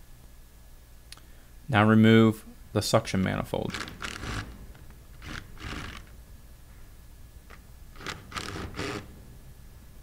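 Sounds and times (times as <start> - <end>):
impact gun bursts: 3.7 - 6.1, 8.0 - 9.2.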